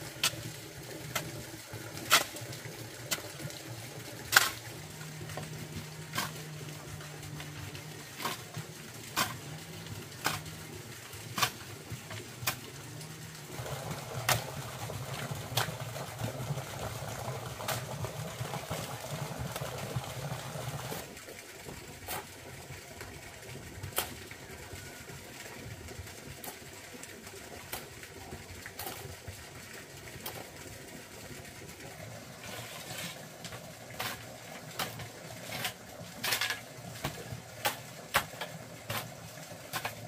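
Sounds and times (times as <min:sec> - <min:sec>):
low steady hum: 0:00.0 - 0:21.1.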